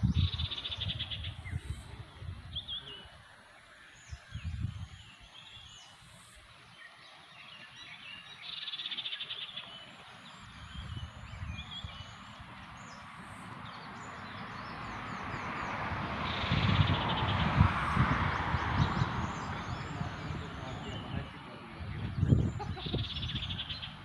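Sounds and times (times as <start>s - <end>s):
low rumbling microphone bumps: 0.0s - 2.7s, 16.5s - 23.9s
birds calling: 0.0s - 24.0s.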